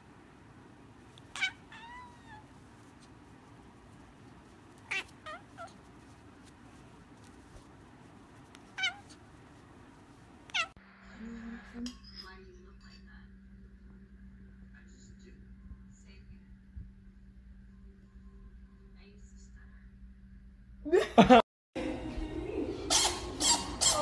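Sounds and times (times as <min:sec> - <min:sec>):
kitten crying: 0:01.2 - 0:02.6, 0:04.7 - 0:05.9, 0:08.6 - 0:09.2, 0:10.5 - 0:10.8.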